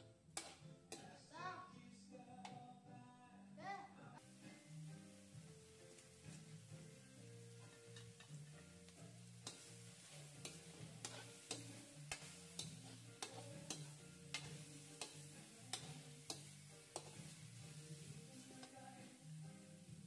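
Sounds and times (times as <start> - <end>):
meat frying: 0.0 - 1.2, 4.2 - 20.0
soft background music: 0.0 - 20.0
metal spatula scraping a wok: 0.4 - 1.2, 7.4 - 19.2.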